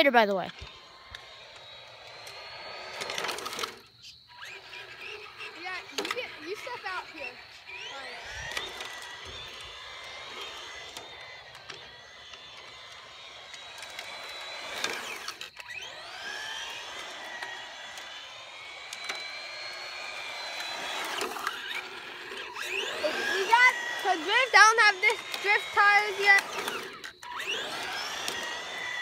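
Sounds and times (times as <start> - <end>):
rc car motor whining: 0.0 - 29.0.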